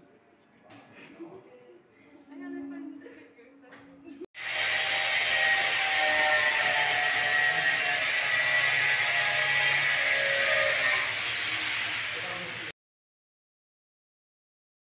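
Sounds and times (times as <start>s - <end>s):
angle grinder grinding metal: 4.4s - 12.7s.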